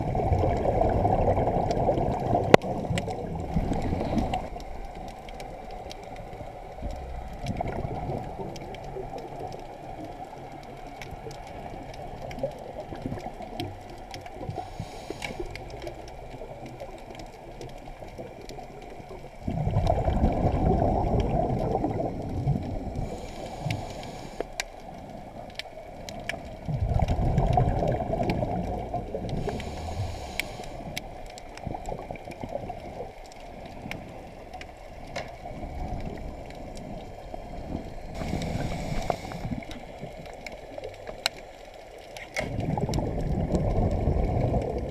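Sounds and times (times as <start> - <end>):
regulator bubbles rushing: 0.0 - 5.7, 6.6 - 9.6, 18.0 - 23.1, 26.6 - 29.4, 42.4 - 44.9
muffled underwater rumble: 0.0 - 44.9
faint clicks: 1.6 - 20.0, 22.6 - 44.9
hissing breaths: 14.6 - 15.7, 23.0 - 24.7, 29.3 - 31.1, 38.1 - 40.0.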